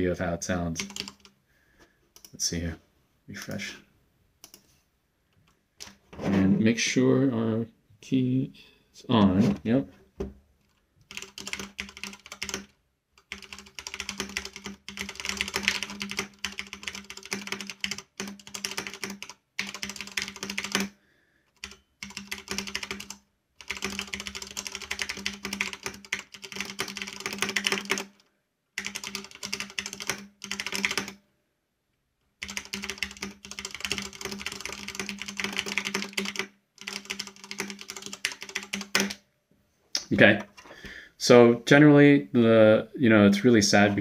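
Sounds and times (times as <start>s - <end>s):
mechanical keyboard typing: 0.8s - 1.3s, 10.7s - 20.9s, 21.6s - 28.2s, 28.8s - 31.2s, 32.4s - 39.2s.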